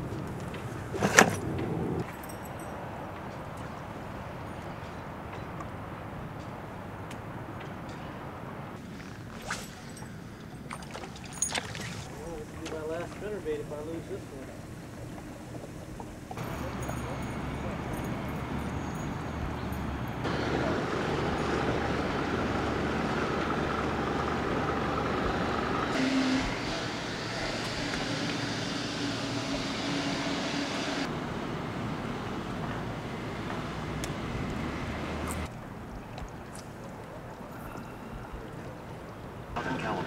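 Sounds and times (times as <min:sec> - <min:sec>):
engine noise with deep hum: 0:12.3 - 0:35.5.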